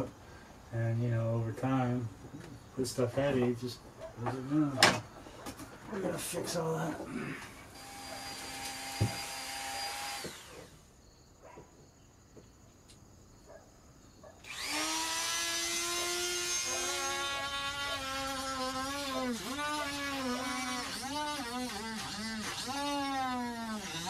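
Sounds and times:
rotary tool whining: 7.6 - 10.9, 14.4 - 24.0.

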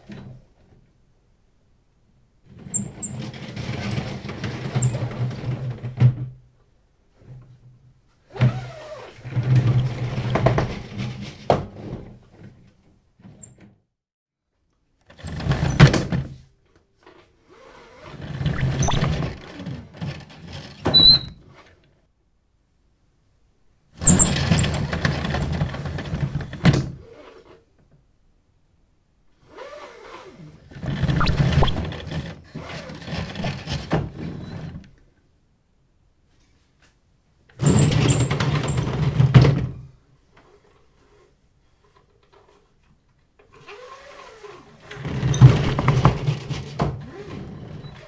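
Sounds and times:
roller shutter slats rattling: 2.7 - 6.0, 9.2 - 11.3, 18.2 - 21.1, 24.0 - 26.8, 30.8 - 33.9, 37.6 - 39.5, 44.9 - 46.8.

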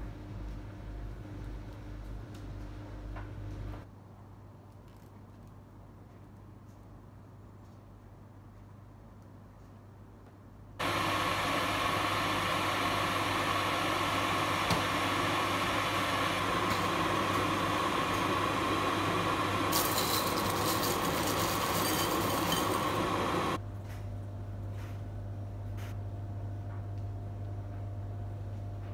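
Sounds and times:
electric kettle heating water: 10.8 - 23.6.

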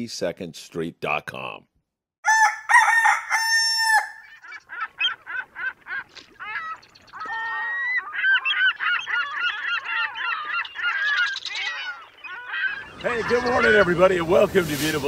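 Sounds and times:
rooster crowing: 2.2 - 4.3
birds honking calls: 2.3 - 15.0.

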